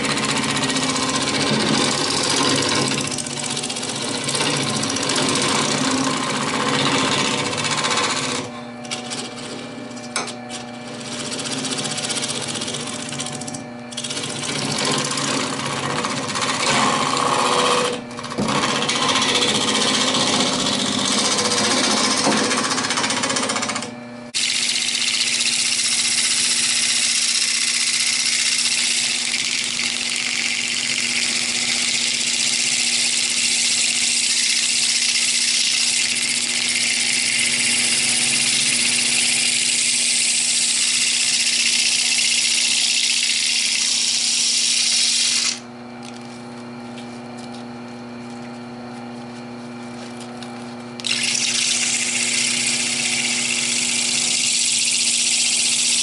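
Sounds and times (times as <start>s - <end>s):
lathe motor humming: 0.0s - 46.8s, 49.4s - 56.0s
lathe tool cutting hiss: 24.3s - 45.6s, 51.0s - 56.0s.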